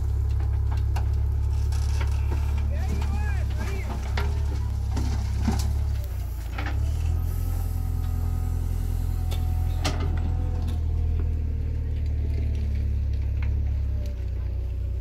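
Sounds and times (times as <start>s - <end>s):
diesel engine running: 0.0s - 15.0s
knocks and clanks: 0.2s - 7.0s.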